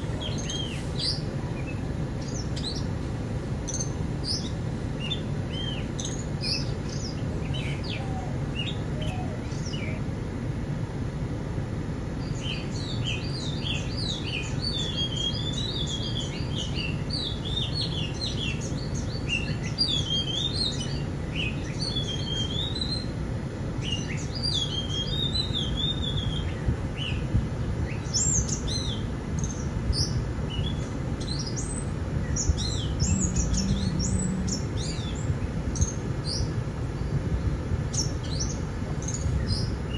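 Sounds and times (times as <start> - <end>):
birds chirping and singing: 0.0 - 10.1, 12.2 - 39.9
steady low rumble: 26.2 - 39.9.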